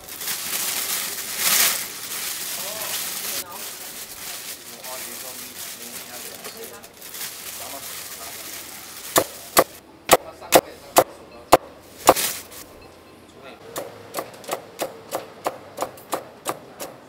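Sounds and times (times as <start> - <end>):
cleaver chopping meat: 13.7 - 17.0.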